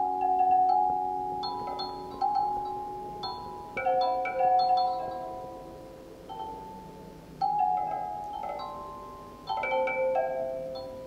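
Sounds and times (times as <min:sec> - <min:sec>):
computer-generated wind chimes: 0:00.0 - 0:05.6.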